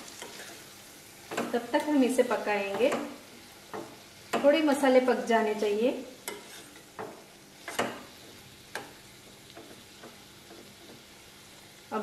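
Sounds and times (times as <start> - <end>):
soft sizzle of cooking: 0.0 - 12.0
metal spatula scraping pan: 0.1 - 0.7, 5.6 - 9.0.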